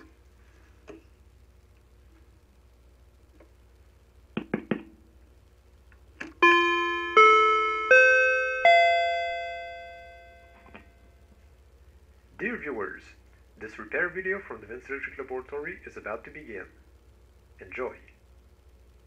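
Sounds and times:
rising chime through speakers: 6.4s - 11.0s.

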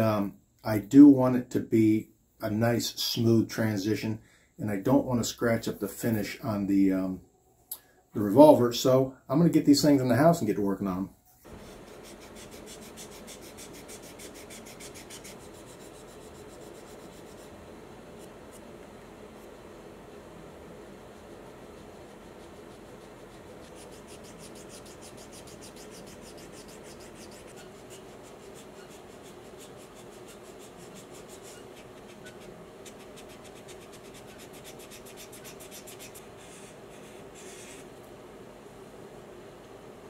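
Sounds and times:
faint steady hum: 0.0s - 40.0s
sanding block scratching: 11.4s - 17.5s, 21.7s - 37.8s.

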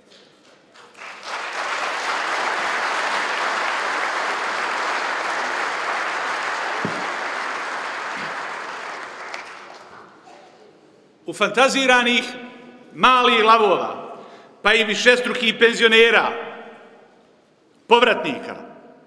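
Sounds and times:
audience clapping: 0.0s - 10.4s.

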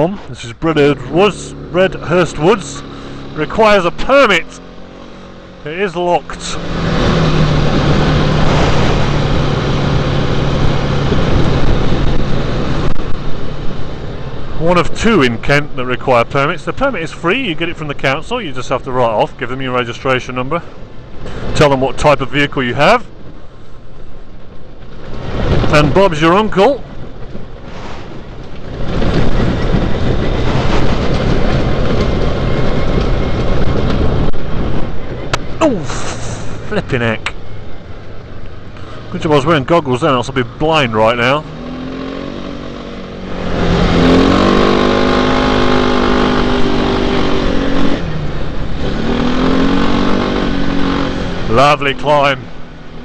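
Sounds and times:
wind noise: 6.7s - 14.4s, 26.8s - 36.8s
motorcycle rattling over ruts: 24.4s - 35.8s
motorcycle engine pulling hard: 38.8s - 53.0s.

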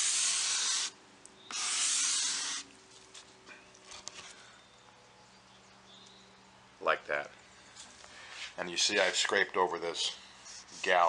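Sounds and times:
razor blade scraping wood: 0.0s - 2.7s.

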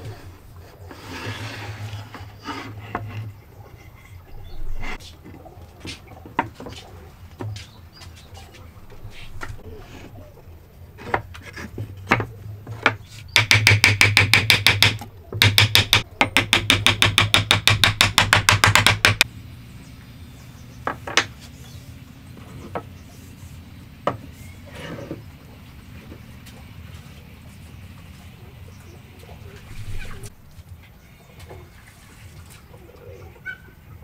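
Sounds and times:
hammer tapping on wooden beam: 13.4s - 19.2s.

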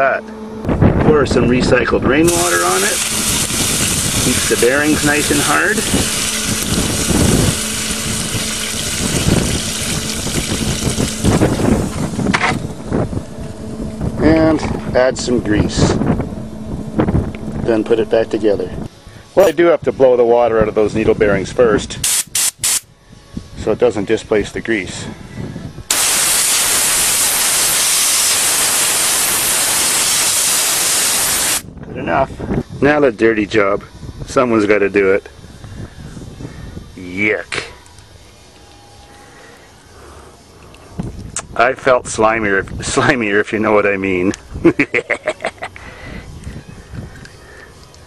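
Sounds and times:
faint low hum: 0.0s - 21.4s
compressed-air blow gun hissing: 2.2s - 12.6s, 22.0s - 22.9s, 25.9s - 31.7s
water pouring on hot metal: 2.3s - 12.6s, 25.9s - 31.6s.

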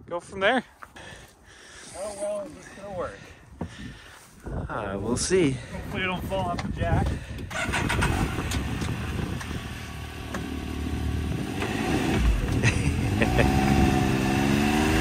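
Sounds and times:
engine revving: 7.5s - 15.0s.

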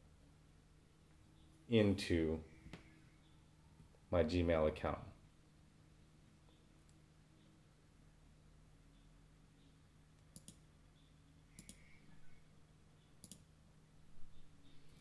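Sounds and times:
faint steady hum: 0.0s - 15.0s
computer mouse double clicks: 13.2s - 13.4s.

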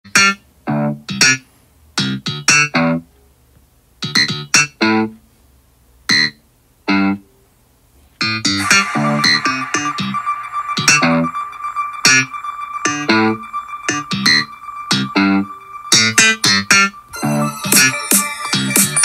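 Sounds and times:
electronic keyboard chord stabs: 8.6s - 19.0s
synth layer with held tone: 8.6s - 19.0s.

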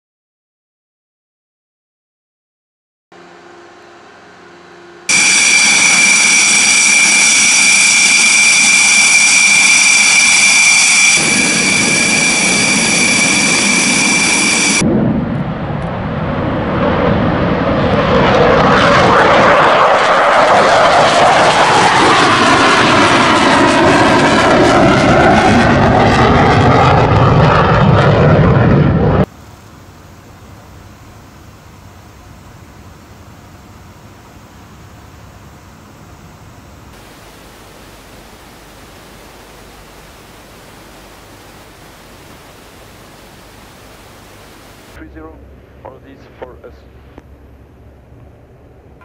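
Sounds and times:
jet engines high whine: 3.2s - 49.0s
jet taking off and passing: 5.1s - 29.3s, 37.0s - 45.3s.

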